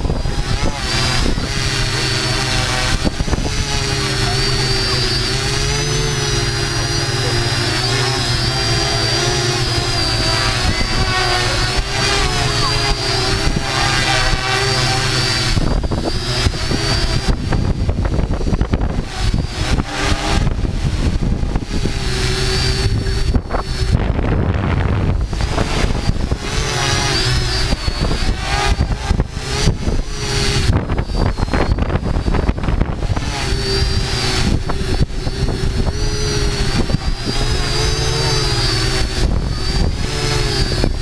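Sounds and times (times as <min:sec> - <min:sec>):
drone propellers whining: 0:00.0 - 0:41.0
rough gusty low rumble: 0:00.0 - 0:41.0.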